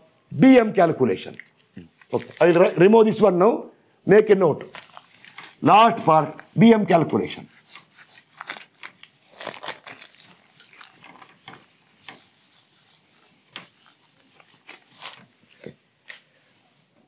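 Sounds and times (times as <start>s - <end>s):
duster rubbing on whiteboard: 5.0s - 8.7s, 10.1s - 15.4s.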